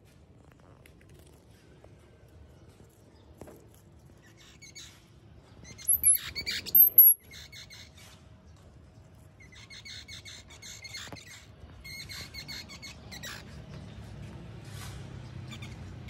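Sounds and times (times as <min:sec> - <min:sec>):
squirrels squeaking: 0:05.6 - 0:08.0, 0:09.4 - 0:13.5.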